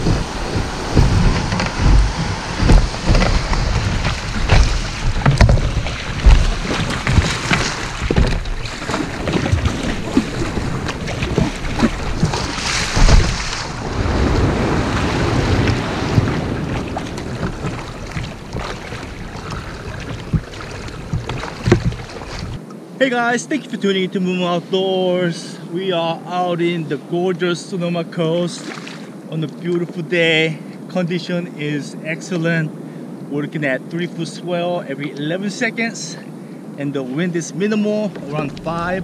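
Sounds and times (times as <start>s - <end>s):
kayak paddle splashing water: 0.0s - 22.6s, 28.6s - 29.1s, 37.6s - 39.0s
wind buffeting microphone: 0.0s - 22.6s, 37.8s - 39.0s.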